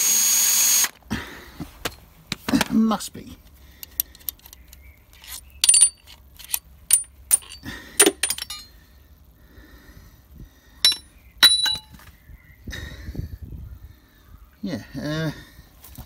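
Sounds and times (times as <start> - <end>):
metal clinks and taps: 5.2 - 8.7, 10.8 - 12.0.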